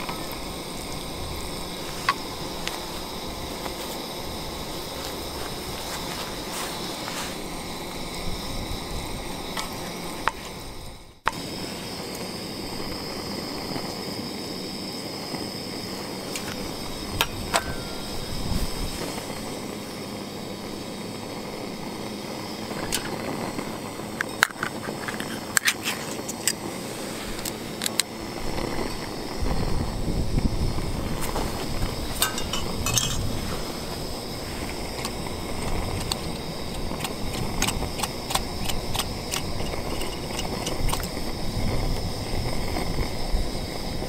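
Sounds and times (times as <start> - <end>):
food sizzling in frying pan: 11.2 - 27.8, 28.5 - 43.9
utensil knocking and scraping pan: 32.2 - 33.4.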